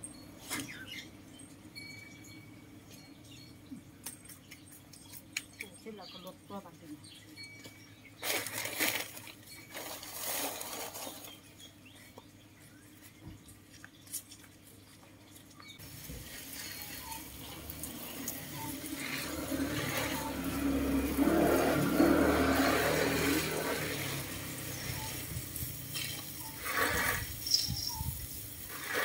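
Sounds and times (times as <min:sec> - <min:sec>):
water poured onto plants: 0:13.6 - 0:29.0.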